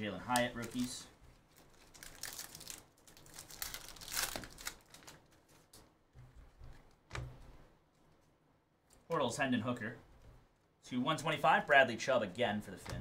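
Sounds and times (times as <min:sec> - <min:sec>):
cards being handled: 0:00.2 - 0:07.2
foil wrapper crinkling and tearing: 0:00.3 - 0:05.8.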